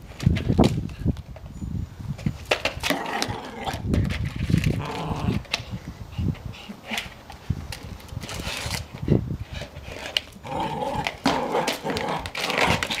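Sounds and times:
plastic pot scraping on concrete: 2.4 - 5.6, 8.0 - 13.0
dog growling: 10.4 - 12.9.

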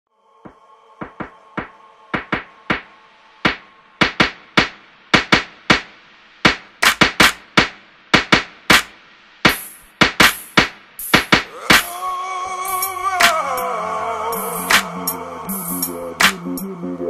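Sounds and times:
snare-like hits: 0.5 - 12.0, 14.6 - 14.9, 15.7 - 16.6.

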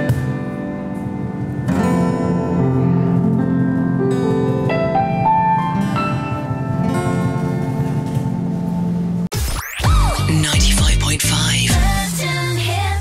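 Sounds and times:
piano keyboard: 0.0 - 9.3
acoustic guitar: 0.0 - 12.1.

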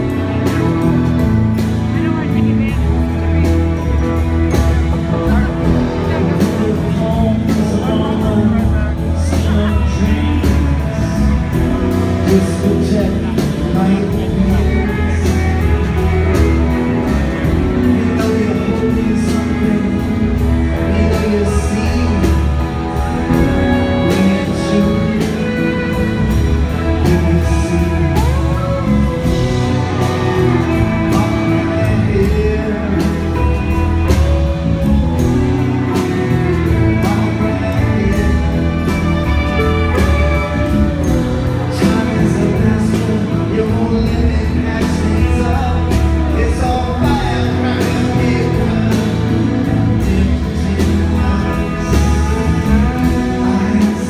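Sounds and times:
bass: 0.0 - 54.0
drums: 0.0 - 54.0
guitar: 0.0 - 54.0
person singing: 0.0 - 54.0
violin: 0.0 - 54.0.

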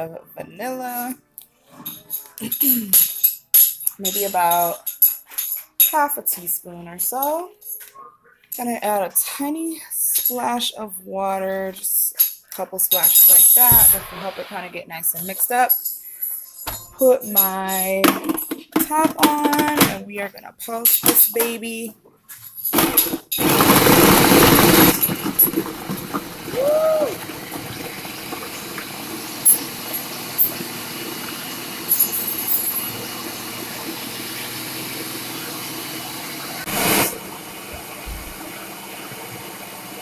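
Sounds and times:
food processor running: 22.8 - 40.0.

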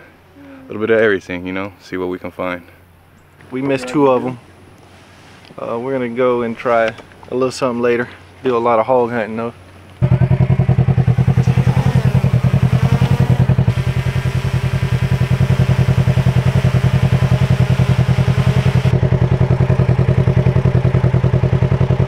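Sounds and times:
engine running with low throb: 9.5 - 22.0.

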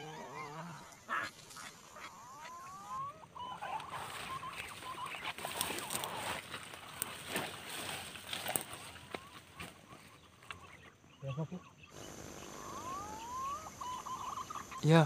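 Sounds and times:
birds whistling: 2.2 - 15.0
foliage rustling with clicks: 3.7 - 10.8.

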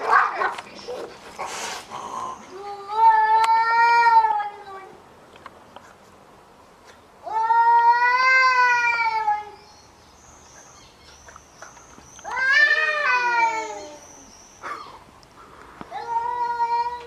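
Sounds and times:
cats yowling: 0.0 - 0.6, 12.2 - 15.0, 15.9 - 17.0.

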